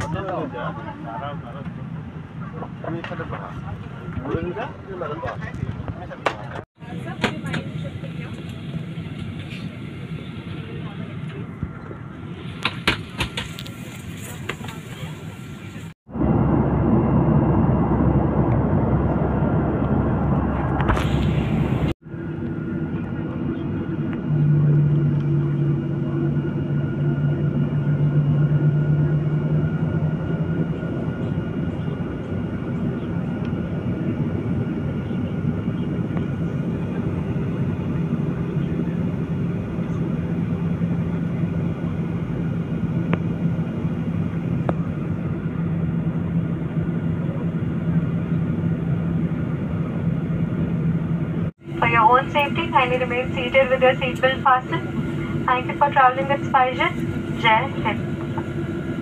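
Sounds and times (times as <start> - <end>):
jet engines rumbling in cabin: 0.0 - 59.0.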